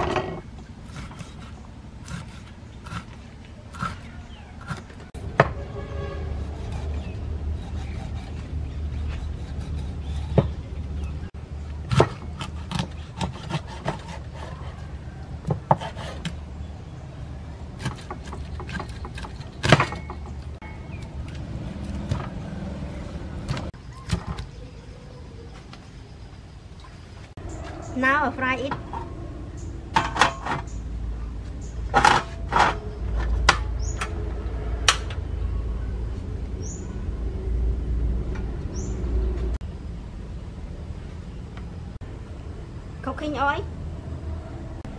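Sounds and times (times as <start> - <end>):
knife chopping on wooden board: 15.4 - 16.4
bird chirping: 16.5 - 29.9, 32.8 - 34.2, 35.4 - 37.2, 38.6 - 39.4.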